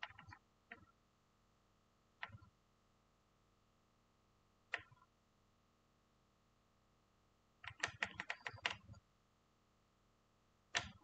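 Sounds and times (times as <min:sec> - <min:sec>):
computer keyboard typing: 0:00.0 - 0:00.9, 0:02.2 - 0:02.5, 0:07.6 - 0:09.0, 0:10.7 - 0:11.0.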